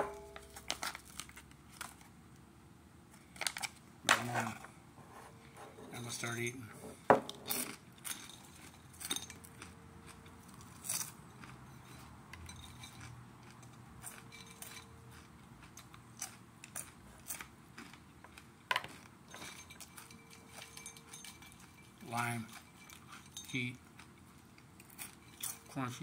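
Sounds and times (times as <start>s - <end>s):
crunchy chewing: 7.4s - 25.8s.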